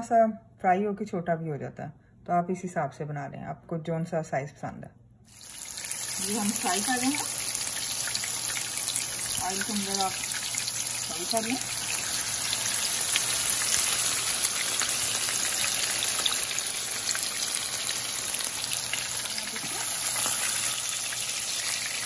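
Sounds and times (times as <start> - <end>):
kebabs sizzling in hot oil: 5.3 - 22.0.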